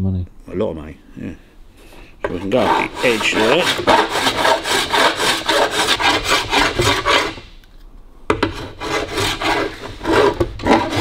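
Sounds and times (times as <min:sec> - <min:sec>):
file rasping on metal: 0:02.2 - 0:07.5, 0:08.4 - 0:11.0.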